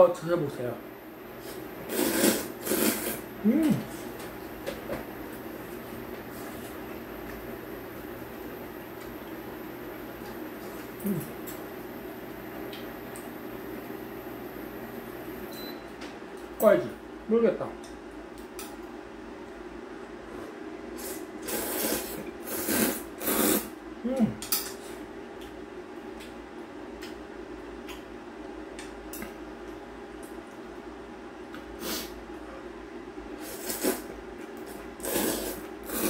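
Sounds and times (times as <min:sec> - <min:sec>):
steady low hum: 0:00.0 - 0:36.0
person slurping noodles: 0:01.4 - 0:03.9, 0:21.0 - 0:23.7, 0:33.4 - 0:34.1, 0:35.0 - 0:36.0.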